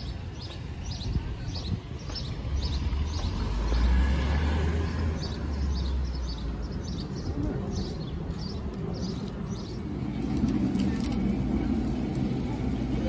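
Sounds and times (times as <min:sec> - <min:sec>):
small birds chirping: 0:00.0 - 0:04.0, 0:04.6 - 0:11.2
vehicle passing by: 0:02.4 - 0:07.0.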